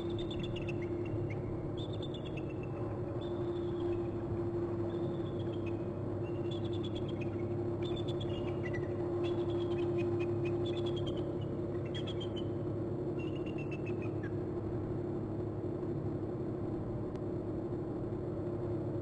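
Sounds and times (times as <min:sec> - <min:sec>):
steady hum: 0:00.0 - 0:19.0.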